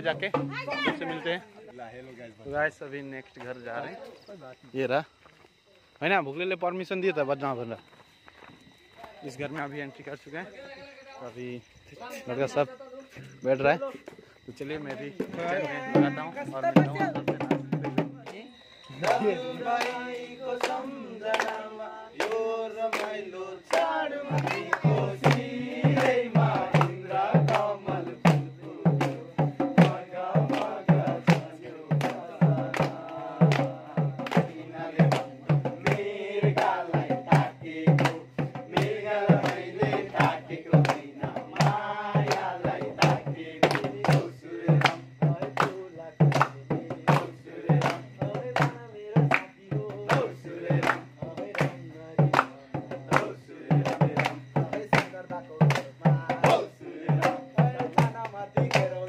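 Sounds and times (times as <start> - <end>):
hand drum beat: 0.0 - 1.3, 15.2 - 18.4, 23.8 - 59.0
men singing together: 14.9 - 18.2, 18.8 - 59.0
hand clapping: 19.0 - 27.7, 31.3 - 35.3, 38.0 - 38.2, 38.8 - 39.6, 40.2 - 59.0.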